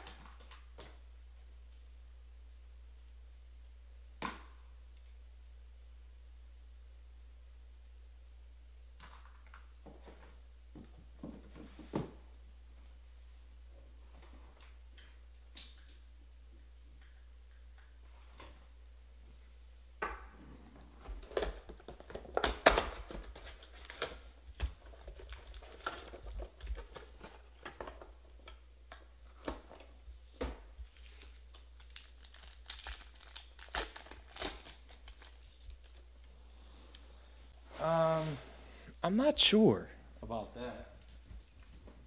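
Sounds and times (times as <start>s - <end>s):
plastic wrapping crinkling: 21.2s - 28.1s, 30.8s - 36.3s
foil packs ripping open: 22.2s - 24.2s, 24.9s - 27.5s, 30.9s - 36.0s.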